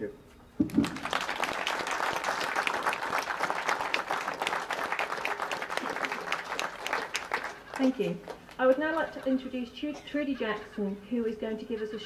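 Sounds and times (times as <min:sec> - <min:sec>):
crowd applauding: 0:00.6 - 0:09.2.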